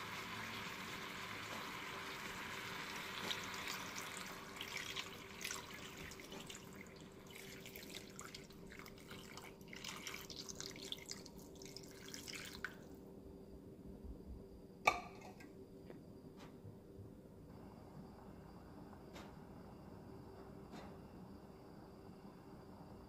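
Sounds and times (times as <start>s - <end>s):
water pouring into frying pan: 0.0s - 12.8s
hot oil crackling and bubbling: 0.0s - 12.9s.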